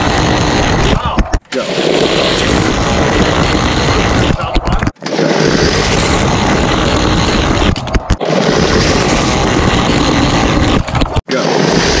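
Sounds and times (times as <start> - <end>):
toy car rolling on track: 0.0 - 12.0.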